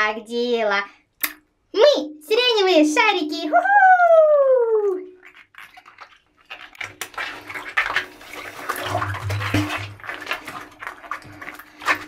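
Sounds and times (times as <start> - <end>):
water balloons squelching in bathtub: 4.9 - 12.0.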